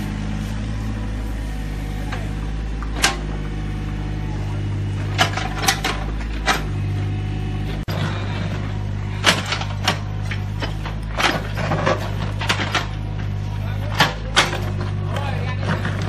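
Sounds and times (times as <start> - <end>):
excavator diesel engine running: 0.0 - 16.0
bucket knocking and scraping rubble: 9.2 - 13.3.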